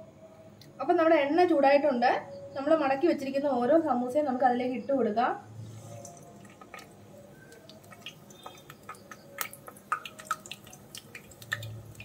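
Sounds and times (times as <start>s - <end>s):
oil sizzling: 5.6s - 12.0s
crackles and pops in oil: 6.0s - 12.0s.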